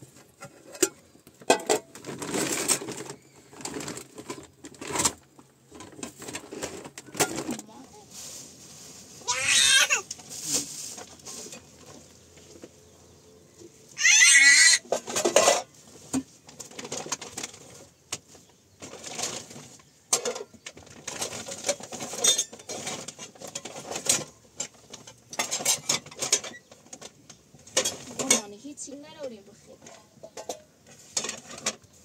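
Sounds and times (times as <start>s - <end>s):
pots and dishes clinking: 0.4s - 3.0s, 14.9s - 15.7s, 20.1s - 27.1s, 30.2s - 31.8s
plastic bags rustling: 1.3s - 13.0s, 13.9s - 32.0s.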